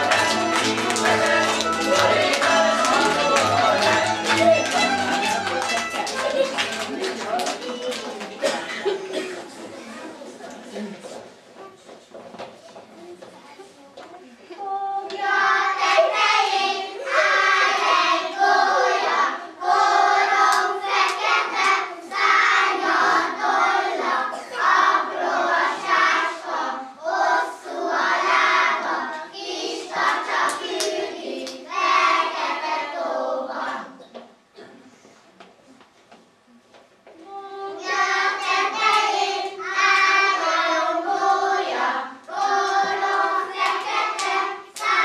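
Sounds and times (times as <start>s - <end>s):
children singing: 0.0s - 6.5s, 14.6s - 34.1s, 37.2s - 45.0s.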